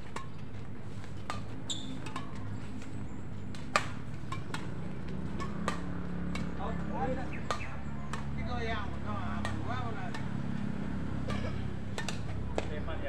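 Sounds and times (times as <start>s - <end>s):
rackets hitting shuttlecock: 0.0s - 13.0s
high squeak: 1.7s - 2.0s.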